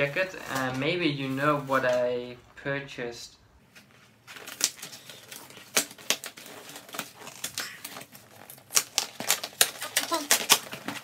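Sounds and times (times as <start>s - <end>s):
packing tape ripping: 4.3s - 11.0s.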